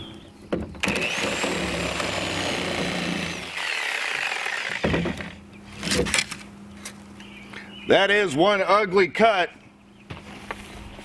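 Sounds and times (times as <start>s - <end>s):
reciprocating saw cutting plywood: 0.8s - 5.4s.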